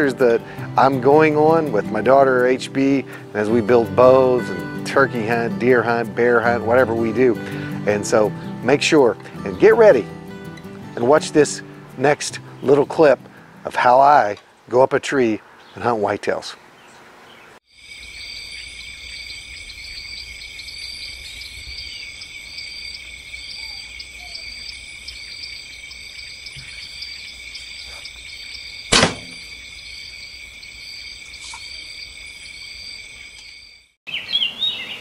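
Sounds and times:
insect chorus droning: 17.3s - 35.0s
small chirp: 23.4s - 29.7s, 31.2s - 35.0s
loud sharp impact: 28.9s - 29.5s.

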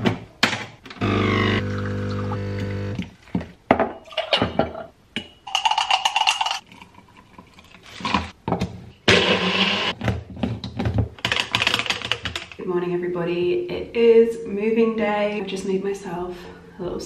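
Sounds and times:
espresso machine pump hum: 1.0s - 3.0s.

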